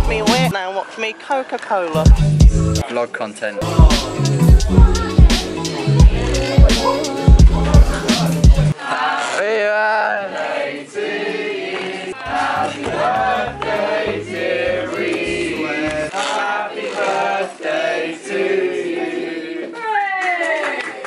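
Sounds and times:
low beat: 0:00.0 - 0:00.5, 0:02.0 - 0:02.8, 0:03.6 - 0:08.8
choir singing: 0:03.6 - 0:09.4, 0:10.0 - 0:19.7.

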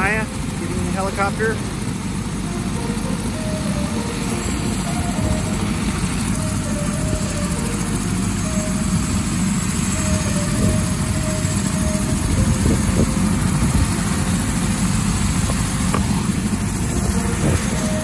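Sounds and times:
helicopter turbine and rotor drone: 0:00.0 - 0:18.0.

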